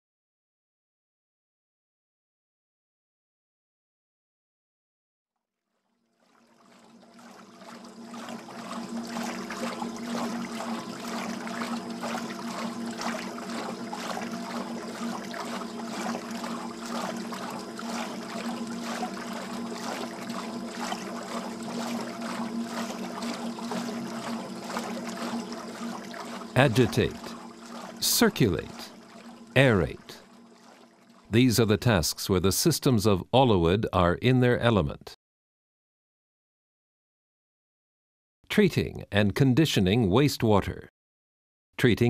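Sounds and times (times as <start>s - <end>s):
water running and splashing: 6.2s - 31.3s
low steady hum: 6.6s - 34.8s.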